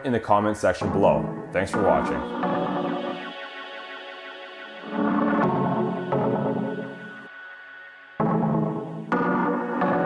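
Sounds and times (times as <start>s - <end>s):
sustained ringing music tones: 0.8s - 10.0s.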